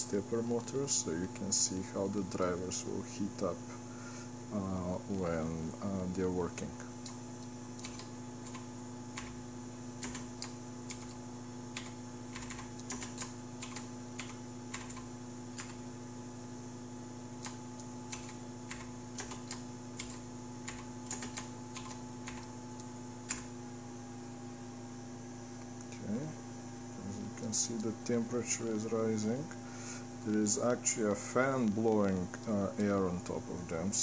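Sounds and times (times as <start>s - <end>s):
steady hum: 0.0s - 34.0s
keyboard typing clicks: 7.0s - 9.4s, 10.0s - 15.8s, 17.4s - 23.5s.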